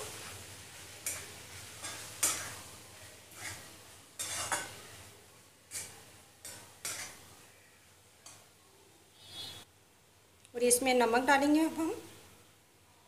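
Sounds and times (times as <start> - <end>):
metal spatula scraping metal pan: 1.0 - 2.7, 3.3 - 5.0, 5.7 - 7.3, 9.2 - 9.6.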